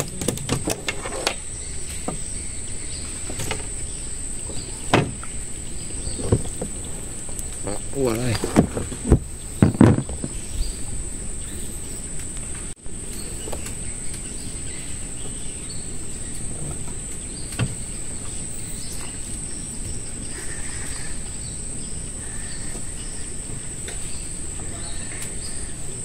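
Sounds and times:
insects droning: 0.0s - 26.0s
short knocks: 8.1s - 10.4s.

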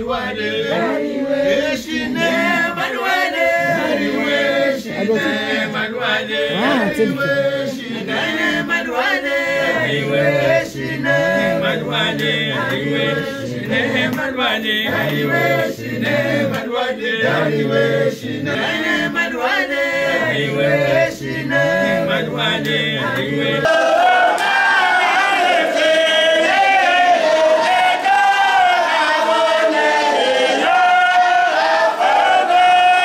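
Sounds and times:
group of voices chanting: 0.0s - 33.0s.

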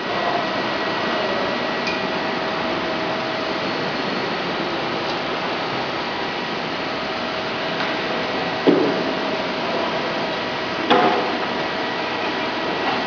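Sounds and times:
machinery hum and hiss: 0.0s - 13.0s.

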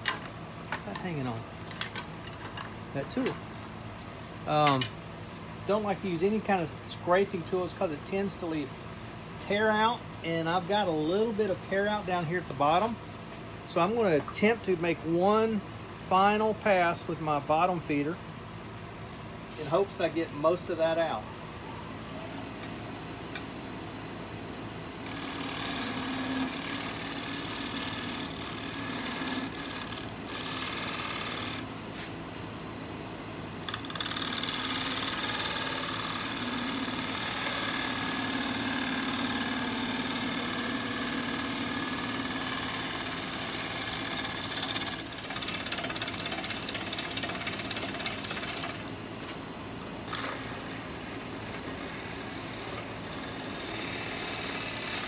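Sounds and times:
gouge cutting spinning wood: 25.0s - 31.7s, 33.7s - 48.9s, 50.0s - 55.0s
wood lathe motor hum: 25.0s - 32.1s, 33.6s - 49.0s, 49.8s - 55.0s.

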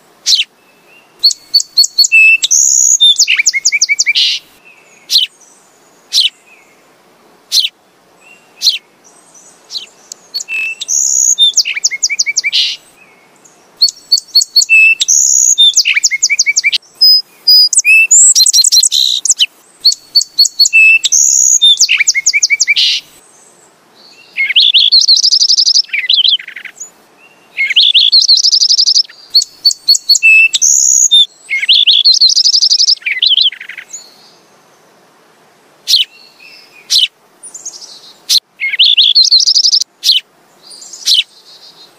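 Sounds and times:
sparrow chirping: 0.2s - 0.5s, 1.2s - 4.4s, 5.0s - 5.4s, 6.1s - 6.4s, 7.5s - 7.7s, 8.6s - 12.8s, 13.8s - 23.0s, 24.2s - 26.9s, 27.6s - 34.2s, 35.9s - 36.2s, 36.8s - 41.6s.

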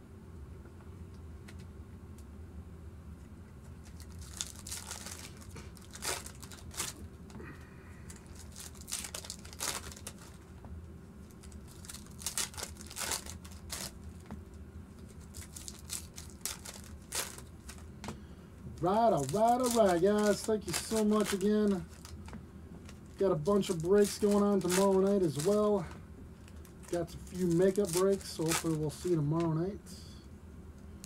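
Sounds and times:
foil wrappers crinkling and tearing: 3.7s - 10.5s, 11.2s - 14.3s, 14.9s - 17.9s, 18.7s - 29.5s.

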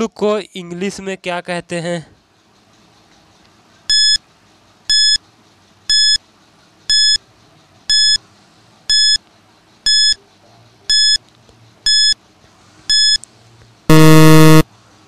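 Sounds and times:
high electronic beeps: 3.9s - 4.2s, 4.9s - 5.2s, 5.9s - 6.2s, 6.9s - 7.2s, 7.9s - 8.2s, 8.9s - 9.2s, 9.9s - 10.2s, 10.9s - 11.2s, 11.9s - 12.2s, 12.9s - 13.2s, 13.9s - 14.6s.

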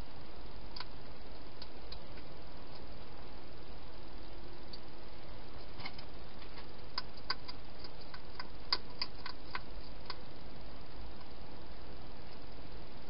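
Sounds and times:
steady hiss: 0.0s - 13.0s
hedgehog chewing clicks: 5.6s - 10.2s.

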